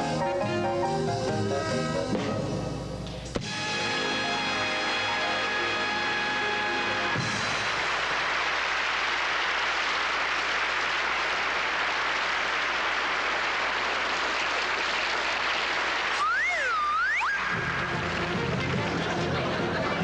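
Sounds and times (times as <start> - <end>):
studio audience applauding: 5.6 - 19.2.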